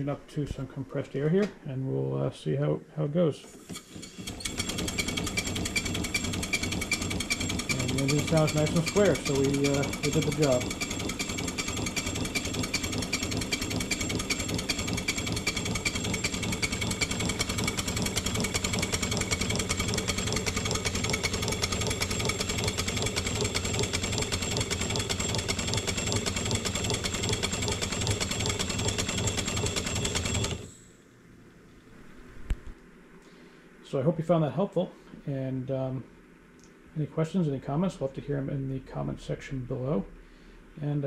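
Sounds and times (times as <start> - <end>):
locomotive exhaust beats: 4.0 - 30.7.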